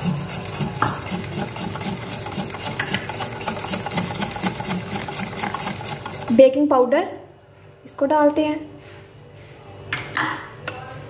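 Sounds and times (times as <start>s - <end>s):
whisk beating batter in glass bowl: 0.0s - 6.5s.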